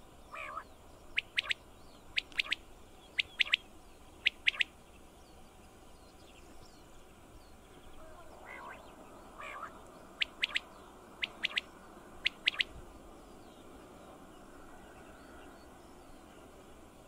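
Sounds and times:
quail singing: 0.3 - 4.7, 8.0 - 12.8.

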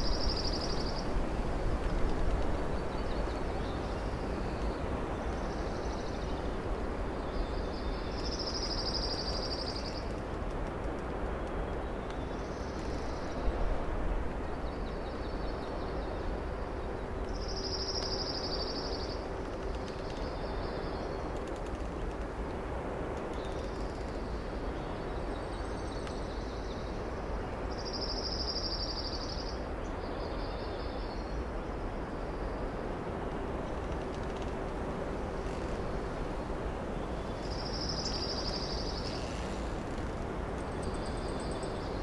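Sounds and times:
forest ambience hiss: 0.0 - 42.0.

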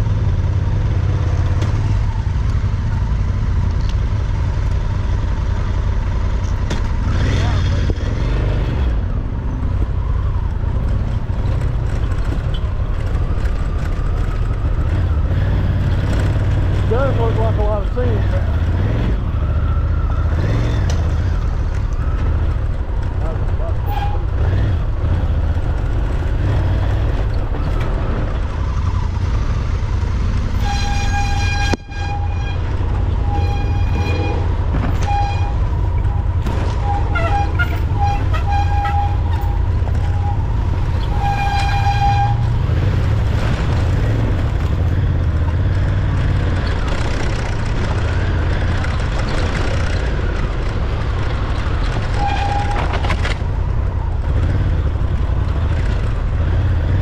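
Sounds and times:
motorcycle engine rumble: 0.0 - 57.0
motorcycle horn tooting: 30.6 - 35.8, 36.8 - 40.4, 41.0 - 42.5.

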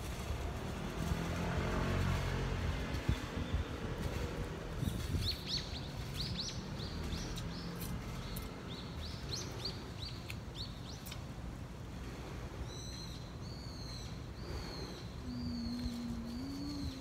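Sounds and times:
small bird chirping: 4.8 - 11.2, 12.7 - 17.0.

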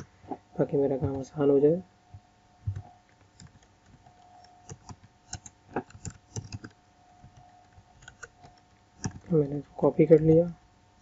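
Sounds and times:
faint steady hum: 0.0 - 11.0
computer keyboard typing: 2.7 - 9.4.

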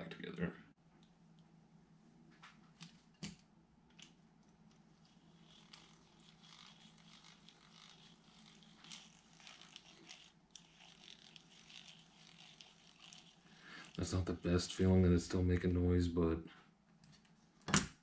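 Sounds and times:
fishing reel gears clicking: 5.1 - 14.4.

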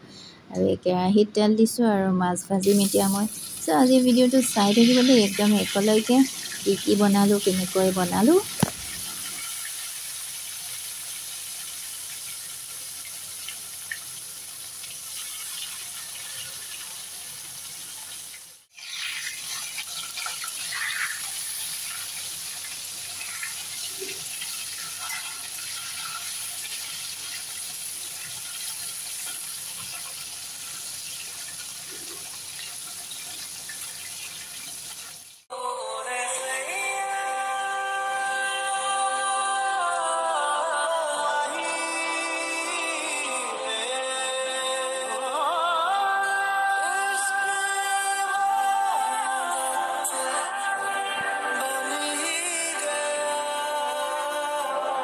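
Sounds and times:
fish sizzling in hot oil: 2.6 - 35.5.

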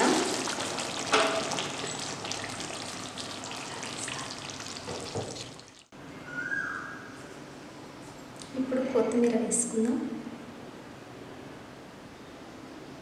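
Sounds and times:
gravy sizzling and popping: 0.0 - 5.9.

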